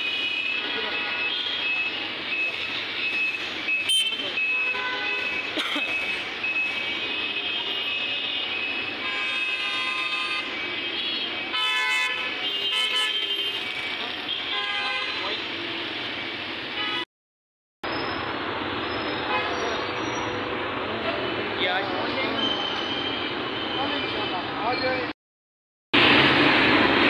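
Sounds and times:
road traffic: 0:00.0 - 0:17.1, 0:17.8 - 0:25.2, 0:25.9 - 0:27.0
car horns honking: 0:03.8 - 0:15.4.

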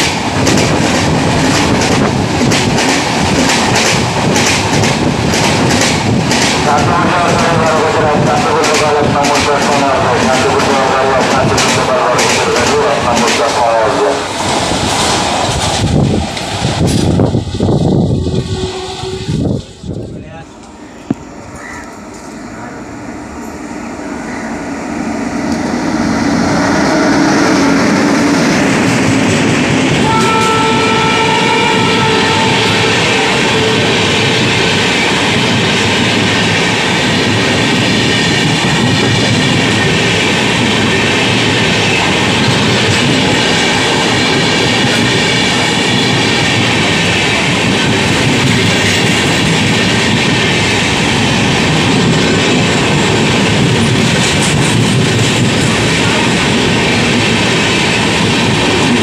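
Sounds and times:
train passing at speed: 0:00.0 - 0:59.0
train horn: 0:18.3 - 0:19.4, 0:26.6 - 0:28.0, 0:30.0 - 0:34.3.

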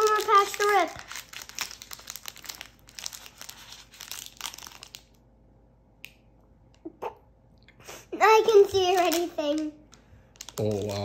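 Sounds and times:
foil card pack crinkling and tearing: 0:00.0 - 0:05.2, 0:08.8 - 0:09.7, 0:10.3 - 0:11.0.

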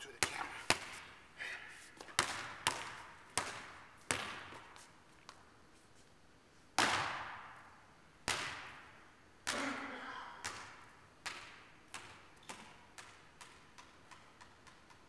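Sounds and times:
basketball bouncing on gym floor: 0:02.0 - 0:05.4, 0:08.2 - 0:09.7, 0:10.4 - 0:15.0.

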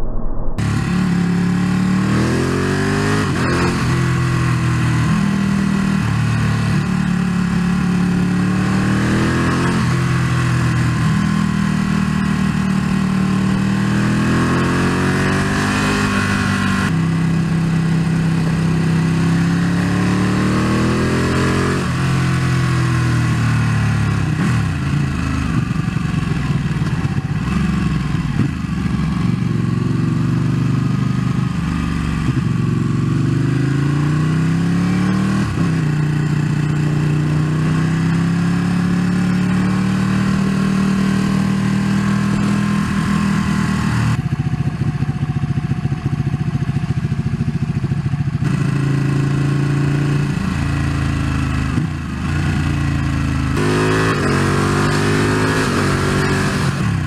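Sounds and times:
wind rushing: 0:00.0 - 0:01.4
motorcycle engine accelerating: 0:00.0 - 0:57.0.

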